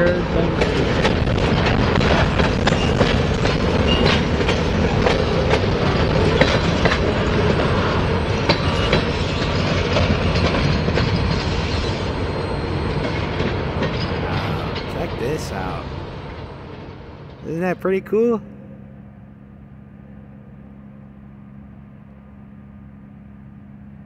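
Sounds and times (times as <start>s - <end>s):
wheels clicking over rail joints: 0.0s - 15.1s
freight train rumbling past: 0.0s - 24.0s.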